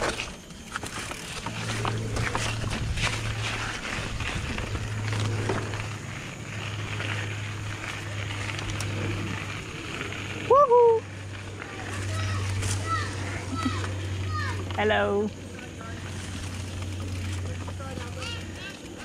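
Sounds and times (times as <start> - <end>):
bike clattering and knocking: 0.0 - 6.1, 15.8 - 19.0
bike tyres on dirt trail: 0.0 - 19.0
rider whooping: 8.9 - 14.6.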